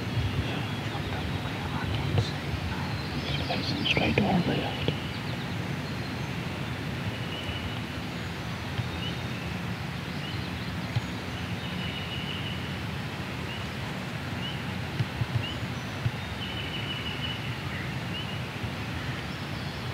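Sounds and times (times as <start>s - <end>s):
songbird chirping and trilling: 0.0s - 6.4s.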